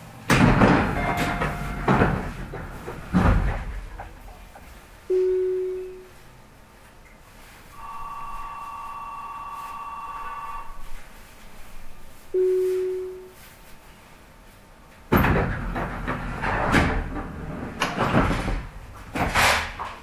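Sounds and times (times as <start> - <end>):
low chime: 1.0 - 1.9
electronic ringing bell: 1.0 - 2.0, 5.1 - 6.0, 7.8 - 10.8, 12.3 - 13.3.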